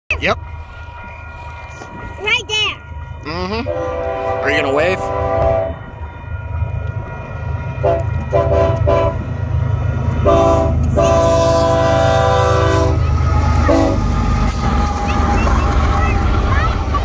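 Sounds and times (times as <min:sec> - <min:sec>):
locomotive rumble: 0:00.1 - 0:17.0
train air horn blasts: 0:03.6 - 0:05.8, 0:07.8 - 0:09.2, 0:10.2 - 0:15.7.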